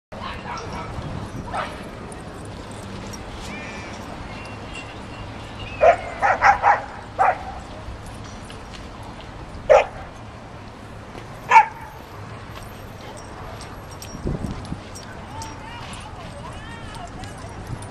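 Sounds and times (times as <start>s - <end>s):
dog barking: 5.8s - 7.6s, 9.7s - 10.0s, 11.5s - 12.0s.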